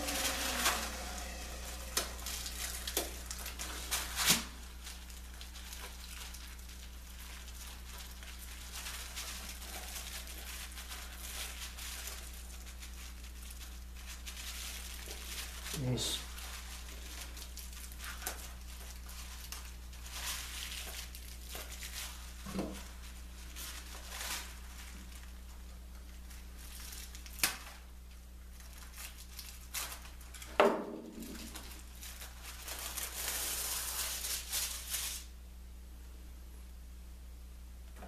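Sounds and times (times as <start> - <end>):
paper tearing rasp: 0.0 - 22.2, 32.6 - 35.3
paper backing rustling: 0.0 - 27.8, 31.1 - 35.3.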